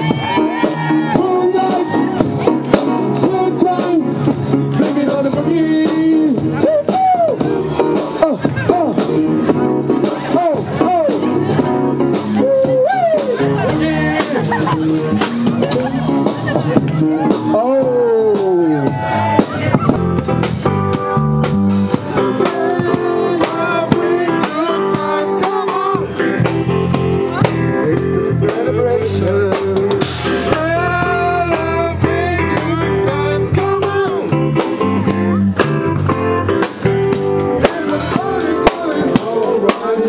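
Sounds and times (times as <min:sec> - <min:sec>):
man singing into a microphone: 0:00.0 - 0:11.6, 0:12.2 - 0:15.2, 0:22.1 - 0:26.5, 0:27.4 - 0:34.6, 0:37.5 - 0:40.0
drum kit: 0:00.0 - 0:40.0
keyboard playing: 0:00.0 - 0:40.0.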